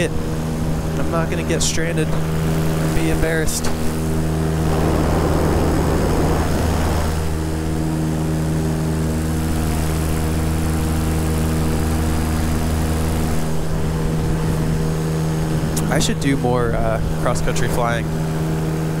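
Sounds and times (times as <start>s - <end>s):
electric motor and propeller humming: 0.0s - 19.0s
rushing noise: 3.8s - 7.9s.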